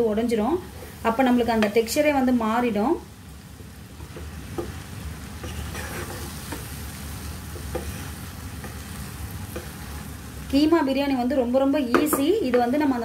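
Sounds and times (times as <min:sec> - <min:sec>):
food sizzling: 0:00.0 - 0:13.0
wooden spatula scraping pot: 0:05.4 - 0:06.7, 0:07.5 - 0:08.8.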